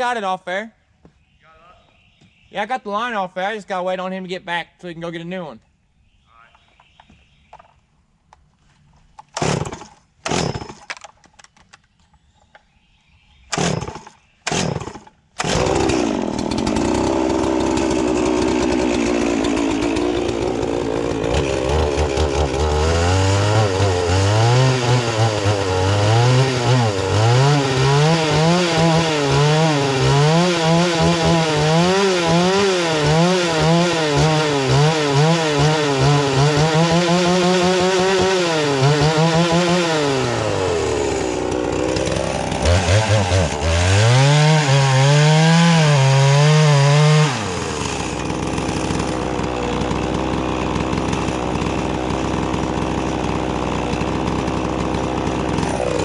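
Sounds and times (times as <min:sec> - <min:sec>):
chainsaw starter cord pulls: 0:09.1 - 0:11.8, 0:13.6 - 0:24.3, 0:28.7 - 0:44.0, 0:46.7 - 0:56.0
chainsaw engine running: 0:13.6 - 0:56.0.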